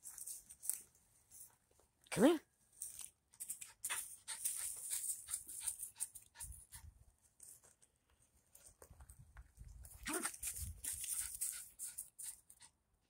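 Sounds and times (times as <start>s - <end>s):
small dog panting: 3.6s - 7.0s, 10.1s - 12.8s.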